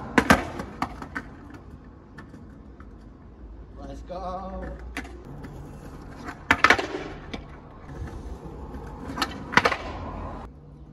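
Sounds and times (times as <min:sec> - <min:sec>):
skateboard wheels rolling on concrete: 0:00.0 - 0:10.9
skateboard tail popping and landing: 0:00.1 - 0:03.0, 0:04.7 - 0:10.2.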